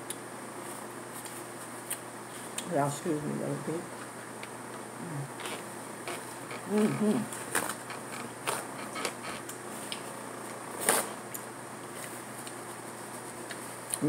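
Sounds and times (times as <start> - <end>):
steady background hiss: 0.0 - 14.0.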